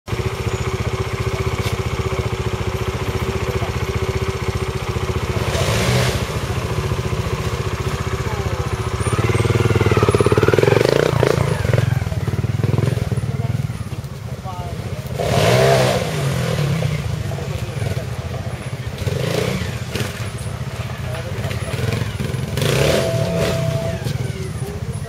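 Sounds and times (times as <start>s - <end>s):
motorcycle engine idling: 0.1s - 25.0s
motorcycle engine revving: 0.1s - 25.0s.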